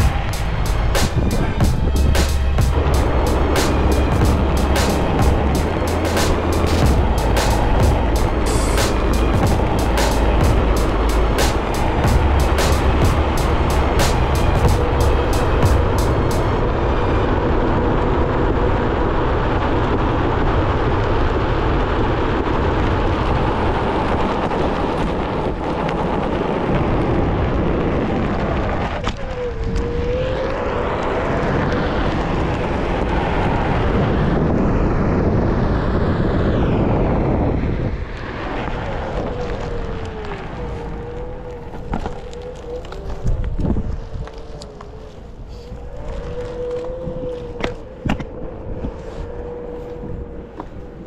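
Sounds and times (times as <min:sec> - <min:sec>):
wind rushing over microphone: 0:00.0 - 0:51.0
tyre rolling on pavement: 0:39.0 - 0:44.9.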